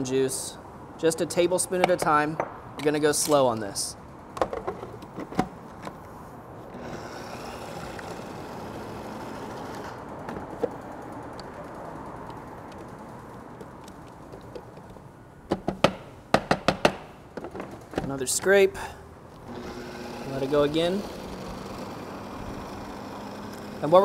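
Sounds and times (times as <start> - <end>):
food processor running: 6.8 - 9.9, 19.5 - 24.0.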